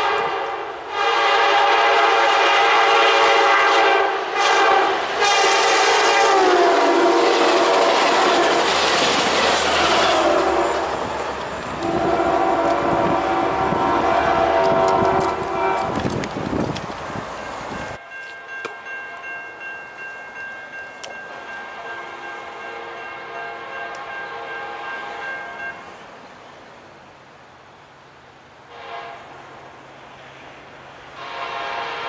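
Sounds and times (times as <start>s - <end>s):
locomotive air horn blasts: 0.0s - 8.7s, 9.8s - 11.1s, 11.8s - 16.0s, 21.7s - 25.6s, 28.7s - 29.5s, 31.1s - 32.0s.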